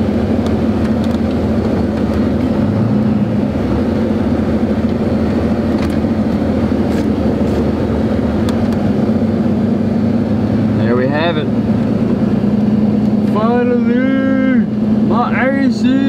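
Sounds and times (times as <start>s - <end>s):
diesel truck engine droning: 0.0s - 16.0s.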